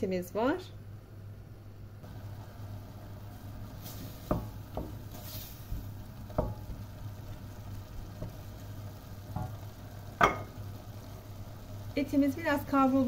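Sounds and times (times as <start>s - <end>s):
meat sizzling in a pot: 2.0s - 13.0s
wooden spoon knocking pot: 4.3s - 5.0s, 6.3s - 6.9s, 9.3s - 10.6s.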